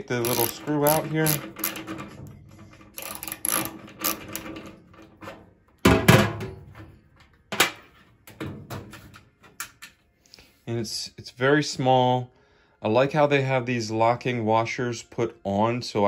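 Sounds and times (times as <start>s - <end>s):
screwdriver clicking on metal: 0.0s - 2.1s, 2.7s - 4.8s.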